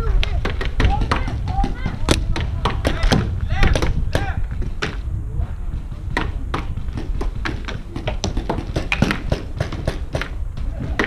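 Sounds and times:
wind rumble on microphone: 0.0s - 11.0s
paintball markers firing: 6.1s - 11.0s.

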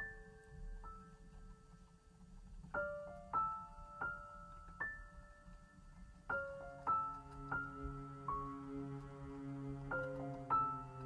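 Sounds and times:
piano music: 2.7s - 11.0s.

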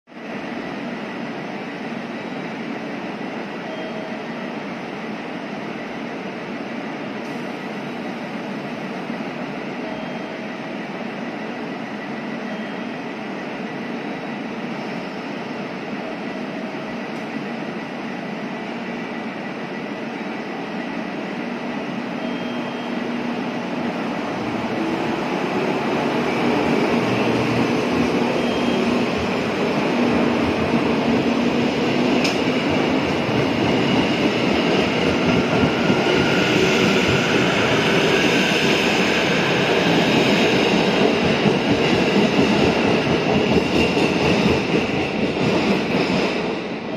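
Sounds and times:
train running noise: 0.2s - 46.9s.

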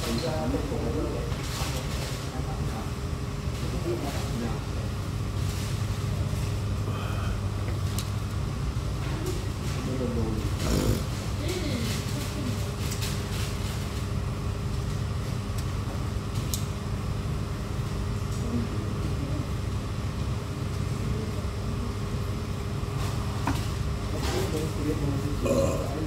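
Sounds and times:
ventilation hum: 0.0s - 26.0s.

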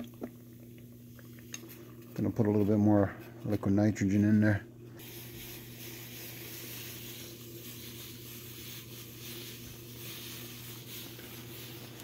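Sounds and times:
steady low hum: 0.0s - 12.0s
liquid nitrogen hissing: 4.9s - 12.0s.

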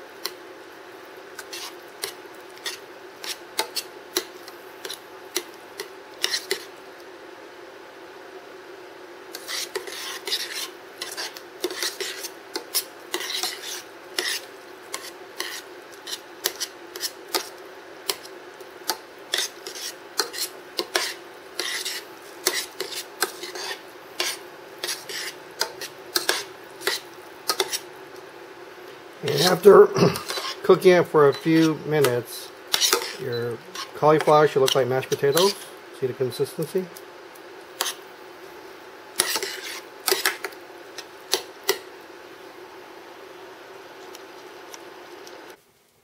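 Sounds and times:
metal spoon scraping a saucepan: 6.2s - 6.7s, 9.3s - 17.5s, 19.3s - 27.8s, 29.2s - 35.7s, 39.2s - 40.5s.

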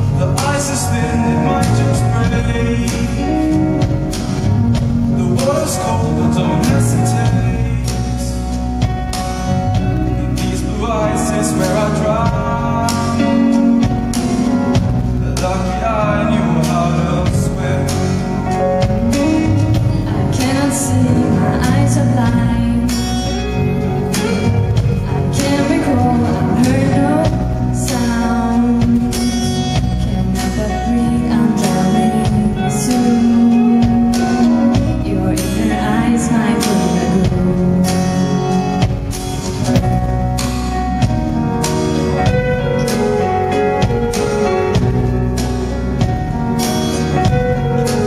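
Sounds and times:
person singing: 0.0s - 9.0s, 9.6s - 39.0s
acoustic guitar: 0.0s - 48.0s
drum kit with cymbal strikes: 0.0s - 48.0s.

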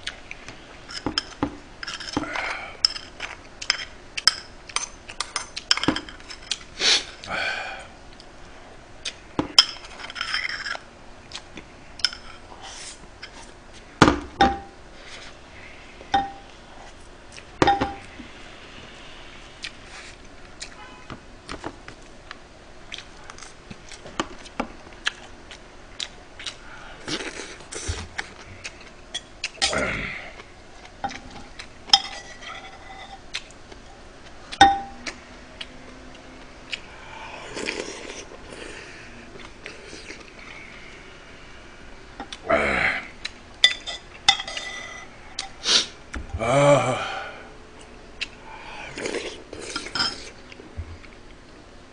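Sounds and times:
metal spoon clinking on bowl: 34.6s - 35.0s.

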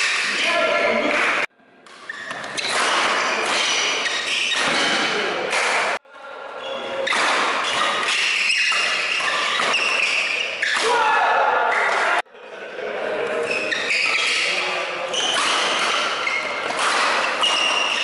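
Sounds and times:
racket strikes: 1.0s - 6.0s, 7.0s - 11.0s, 14.0s - 18.0s.

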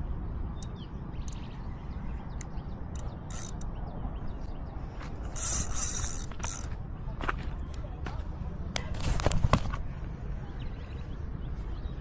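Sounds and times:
fishing reel ratcheting: 2.9s - 3.7s, 5.3s - 6.7s.

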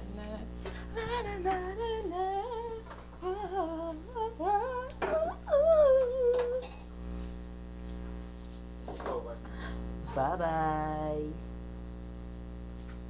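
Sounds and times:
person singing la la la: 0.0s - 6.8s
low electrical hum: 0.0s - 13.0s.

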